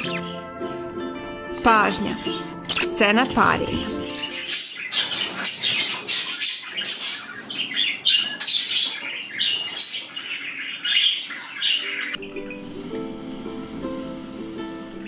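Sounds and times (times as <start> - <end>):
music: 0.0 - 6.3, 10.9 - 15.0
budgerigars chirping and squawking: 0.0 - 12.6.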